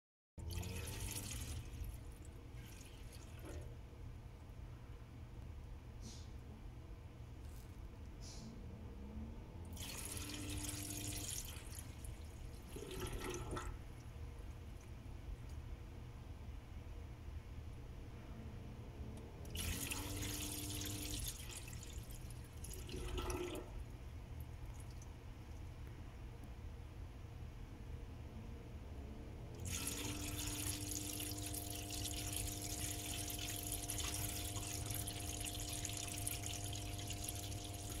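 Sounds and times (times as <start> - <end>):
water gurgling through drain pipes: 0.4 - 3.9, 9.6 - 14.9, 19.4 - 25.2, 29.5 - 38.0.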